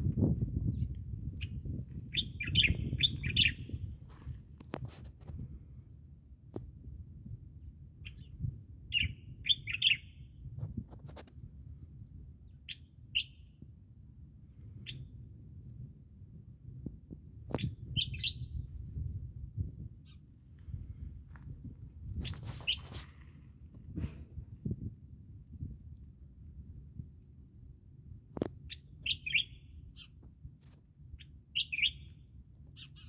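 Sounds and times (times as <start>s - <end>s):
small birds chirping: 0.7s - 3.8s, 8.9s - 10.2s, 17.5s - 18.6s, 28.7s - 30.2s, 31.2s - 33.0s.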